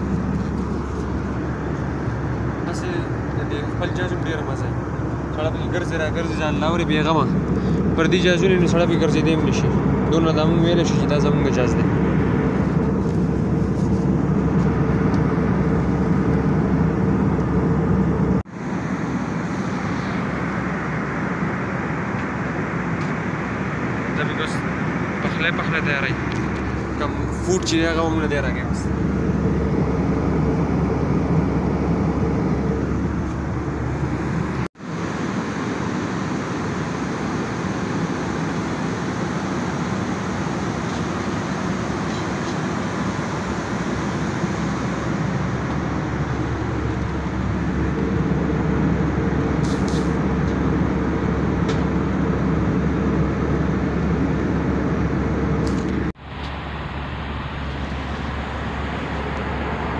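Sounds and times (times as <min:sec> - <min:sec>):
airliner cabin drone: 0:00.0 - 0:59.9
low hum: 0:00.0 - 0:59.9.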